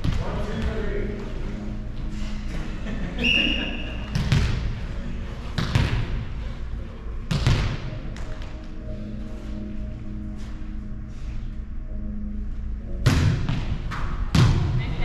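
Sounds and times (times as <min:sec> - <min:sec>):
referee's whistle: 0:03.2 - 0:03.9
volleyball thudding: 0:04.1 - 0:04.7.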